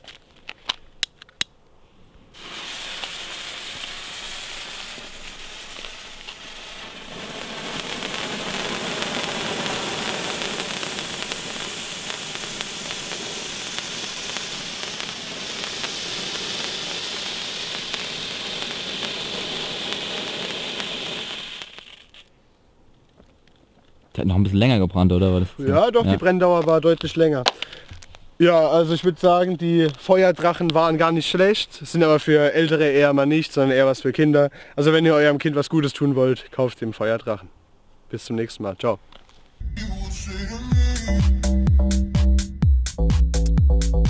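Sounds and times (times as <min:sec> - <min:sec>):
firework fountain hissing: 0:02.3 - 0:22.3.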